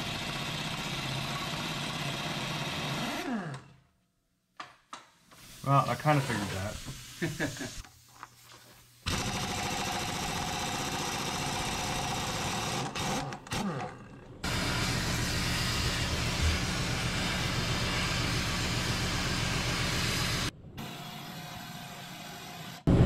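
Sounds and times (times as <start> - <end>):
power tool running: 0.0 - 3.8, 9.0 - 22.9.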